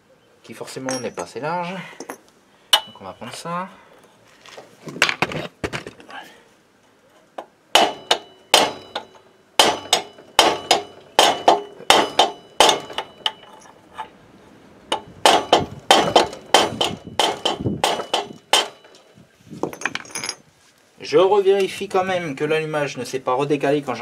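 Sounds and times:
hammer tapping on metal: 0:07.8 - 0:13.5, 0:14.9 - 0:19.0.

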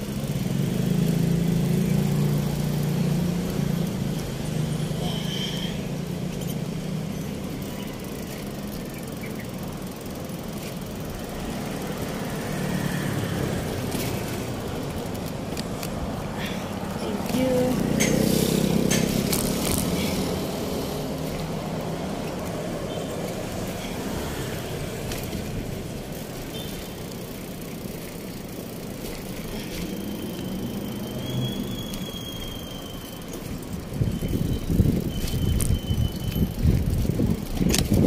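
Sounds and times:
bicycle rumble: 0:00.0 - 0:38.0
thin high squeal: 0:29.9 - 0:33.4.

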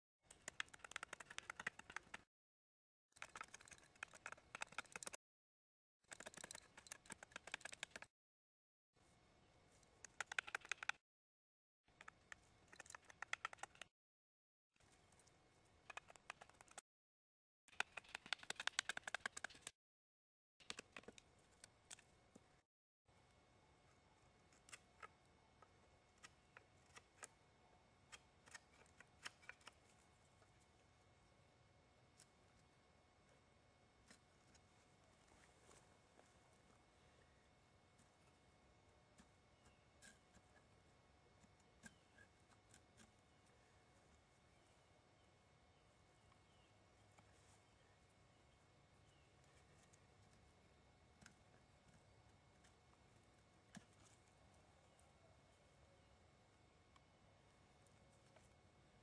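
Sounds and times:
knife carving wood: 0:26.1 - 0:27.4, 0:28.0 - 0:30.0, 0:39.1 - 0:43.6, 0:51.1 - 0:54.4.

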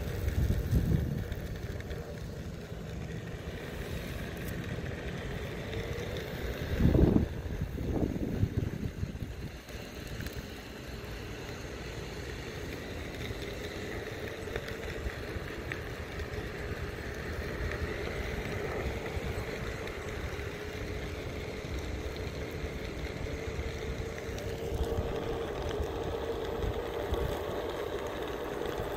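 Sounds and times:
electric motor hum: 0:00.0 - 0:28.9
high motor whine: 0:00.0 - 0:28.9.

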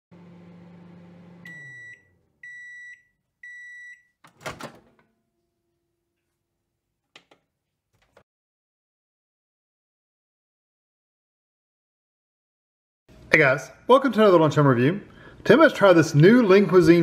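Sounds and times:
microwave oven humming: 0:00.1 - 0:02.8
microwave beeps: 0:01.1 - 0:04.2.

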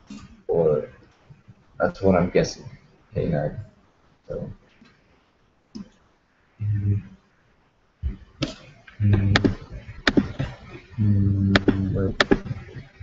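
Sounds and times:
man's low voice: 0:00.5 - 0:00.9, 0:04.3 - 0:04.5, 0:06.6 - 0:07.1, 0:09.0 - 0:13.0
computer mouse clicks: 0:05.7 - 0:06.0.

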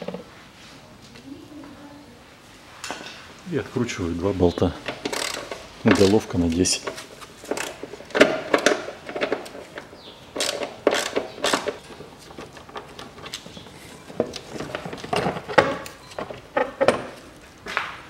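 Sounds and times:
socket ratchet clicking: 0:04.9 - 0:06.2.

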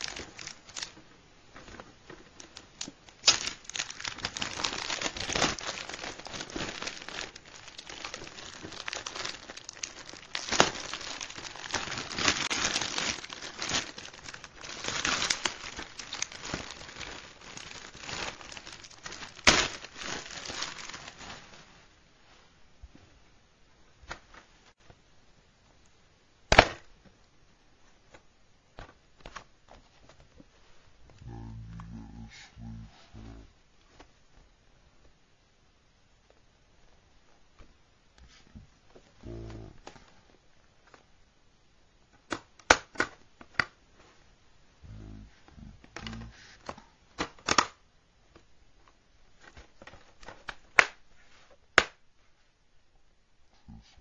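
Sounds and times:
plastic case snapping open: 0:47.2 - 0:47.8.

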